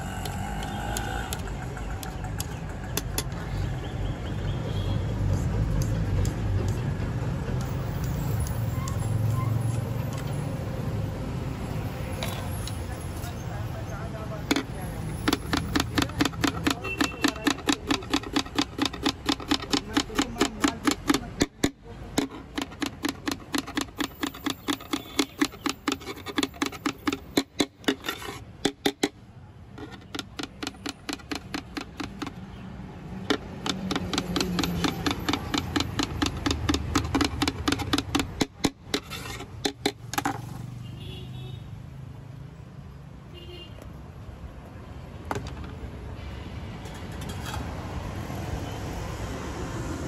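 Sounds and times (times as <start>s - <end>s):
knife chopping on cutting board: 15.3s - 27.8s, 33.6s - 39.1s.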